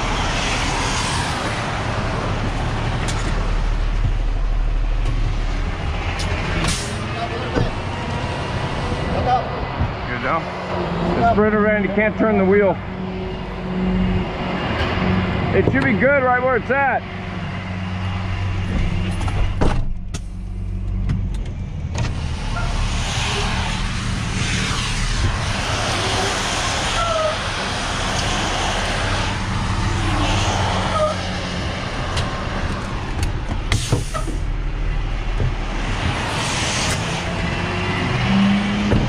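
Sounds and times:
traffic passing: 0:00.0 - 0:39.0
truck engine humming: 0:00.0 - 0:39.0
tyres hissing on wet road: 0:22.2 - 0:32.7, 0:33.7 - 0:34.5, 0:35.8 - 0:38.9.

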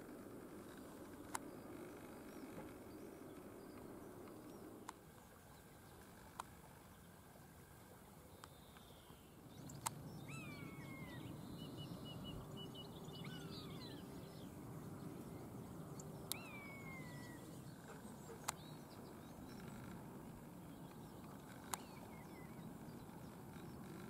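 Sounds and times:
low background rumble: 0:09.4 - 0:24.0
sharp clicks: 0:09.7 - 0:10.0.

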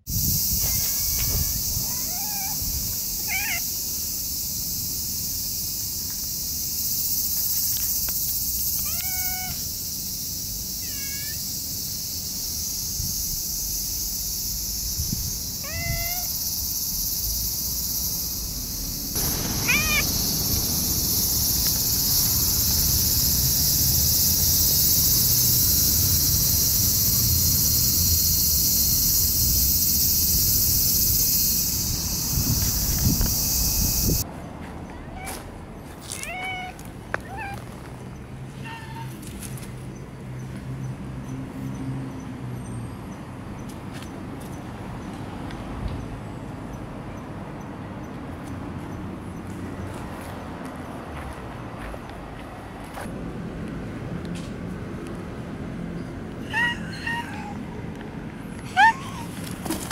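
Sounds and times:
cat meowing: 0:00.7 - 0:03.7, 0:08.8 - 0:09.6, 0:10.8 - 0:11.4, 0:15.6 - 0:16.4, 0:19.6 - 0:20.1, 0:36.1 - 0:37.6
steady high hiss: 0:16.3 - 0:34.2.

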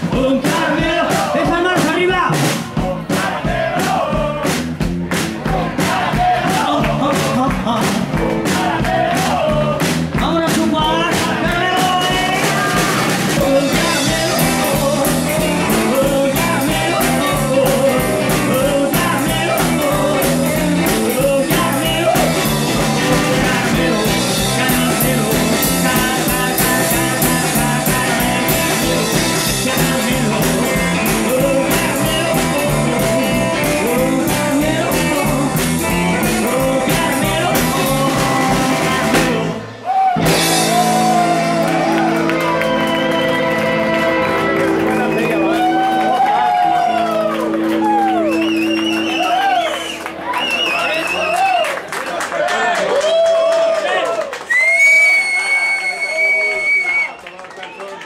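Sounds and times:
rockabilly band playing: 0:00.0 - 0:52.0
person singing: 0:05.5 - 0:48.8.

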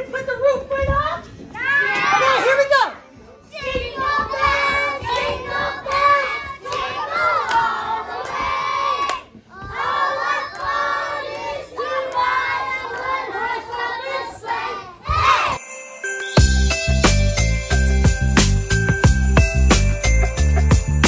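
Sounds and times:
young children singing: 0:04.0 - 0:15.6.

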